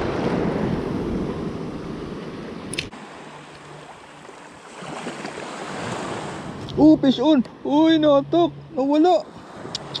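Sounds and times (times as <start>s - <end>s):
sea water splashing on rocks: 4.6s - 6.1s.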